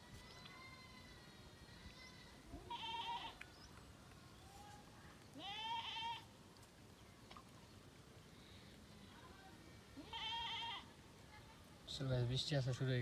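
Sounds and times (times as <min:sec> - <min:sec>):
goat bleating: 0:02.6 - 0:03.4, 0:05.4 - 0:06.3, 0:10.0 - 0:10.9.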